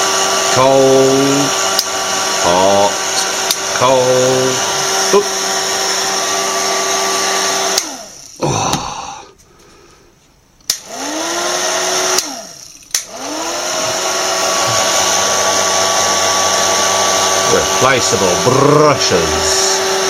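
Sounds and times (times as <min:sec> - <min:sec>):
hairdryer fan motor whine: 0:00.0 - 0:08.4, 0:10.7 - 0:20.0
hairdryer switch click: 0:01.7 - 0:02.0, 0:03.4 - 0:03.7, 0:07.7 - 0:08.0, 0:10.6 - 0:11.0, 0:12.0 - 0:13.3.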